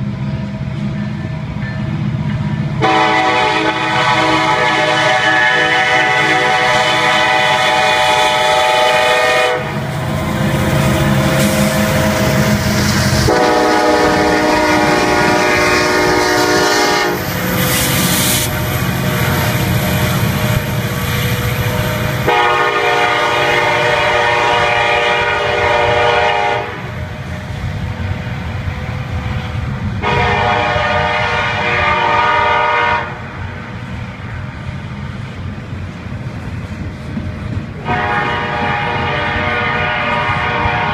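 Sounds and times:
diesel locomotive rumble: 0.0 - 40.9
train air horn blasts: 2.8 - 19.8, 21.7 - 27.0, 30.0 - 33.3, 37.8 - 40.9
train wheel clatter: 6.2 - 24.0.

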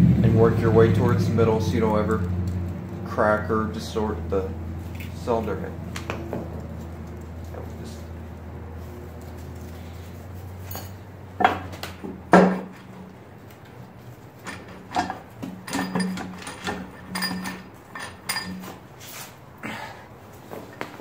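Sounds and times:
ringing metal clanks: 10.6 - 11.7, 12.3 - 13.1, 14.4 - 18.8
metal clunks and knocks: 10.8 - 13.1, 14.4 - 18.8.

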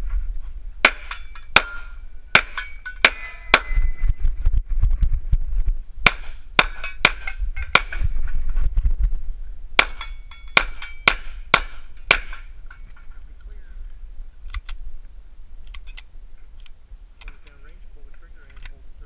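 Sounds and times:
low rumble: 0.0 - 19.0
pistol shots: 6.1 - 8.1, 9.8 - 12.5.

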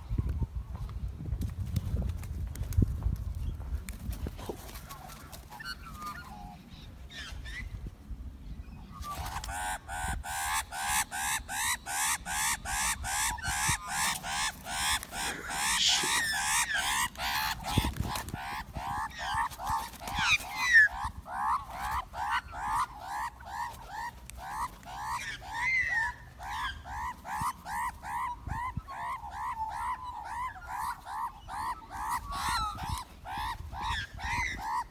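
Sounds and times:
magpies squawking: 8.9 - 34.9.

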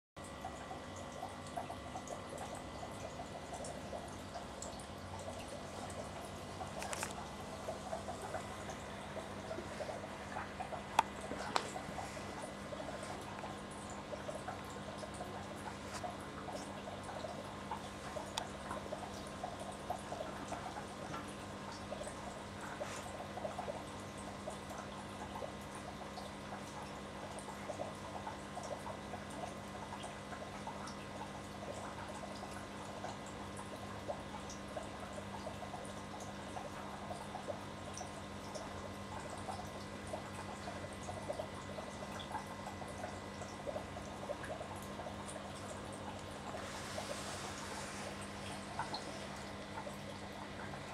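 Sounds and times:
steady low hum: 0.2 - 25.8, 26.6 - 50.9
aquarium water bubbling: 0.2 - 50.9
small pops and ticks: 10.9 - 11.8.

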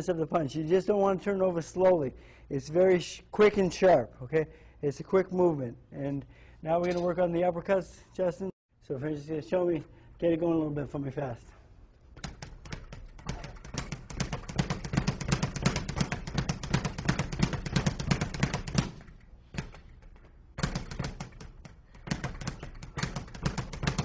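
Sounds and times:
speed bag being punched: 12.2 - 24.0.

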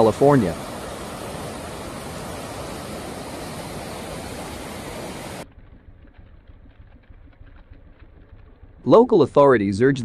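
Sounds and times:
creek rushing over rocks: 0.0 - 5.4.

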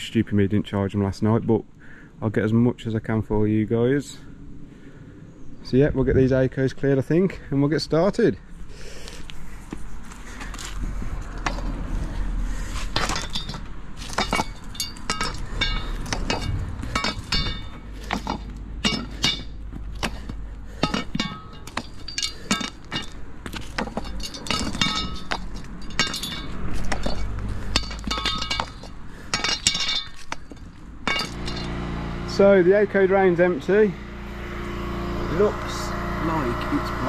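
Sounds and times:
metal grates clattering and clinking: 13.0 - 20.2, 20.8 - 31.8.

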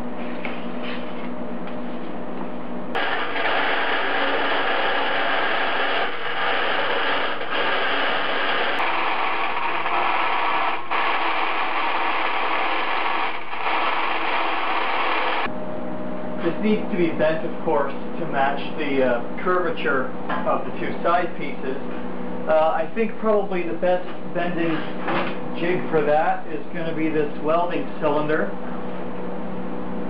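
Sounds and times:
steady hum: 0.0 - 30.0
bandsaw cutting steel: 3.0 - 15.5.

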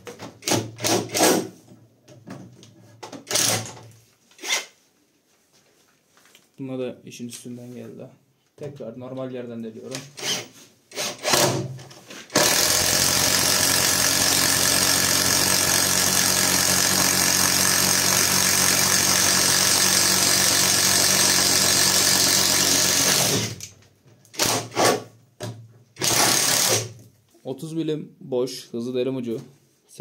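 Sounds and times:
impact driver boring into wood: 3.3 - 3.8, 10.2 - 11.7, 12.3 - 23.7, 24.3 - 25.1, 26.0 - 27.0.

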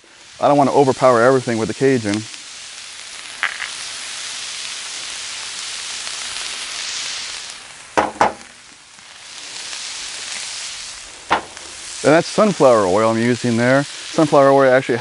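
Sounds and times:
vegetables sizzling in oil: 0.0 - 15.0
quick knocks: 8.0 - 8.5.

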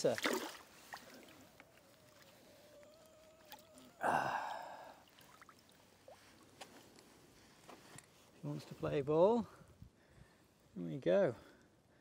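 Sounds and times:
man exhaling sharply: 4.0 - 5.0.

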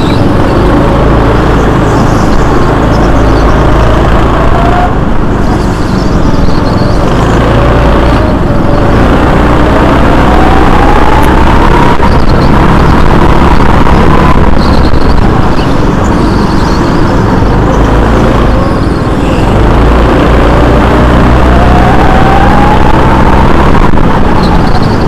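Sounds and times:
go-kart motor running: 0.0 - 25.0.

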